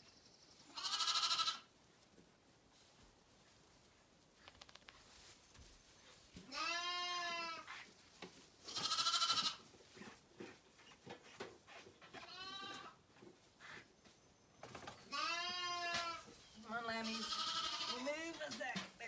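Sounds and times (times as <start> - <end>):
lambs bleating: 0.7 - 1.7, 6.5 - 7.7, 8.7 - 9.6, 12.2 - 13.0, 15.1 - 16.3, 17.0 - 18.2.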